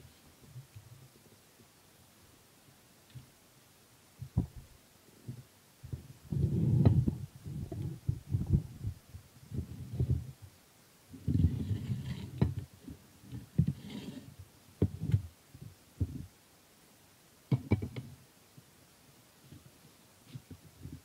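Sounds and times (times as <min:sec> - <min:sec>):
dull handling thumps: 0:04.2 - 0:04.7.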